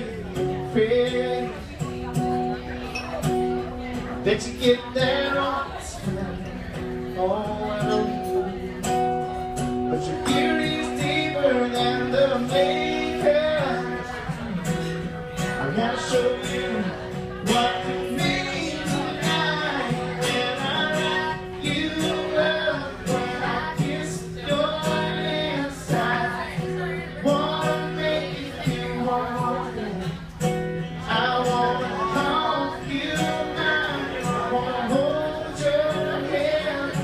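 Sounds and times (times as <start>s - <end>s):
acoustic guitar strumming: 0.0s - 37.0s
person singing: 15.6s - 37.0s.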